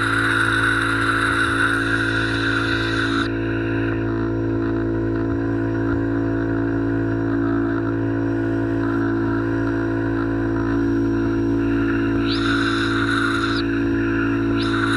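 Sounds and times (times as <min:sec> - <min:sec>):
high-pressure water jet hissing: 0:00.0 - 0:03.3, 0:12.2 - 0:14.9
pressure washer motor humming: 0:00.0 - 0:14.9.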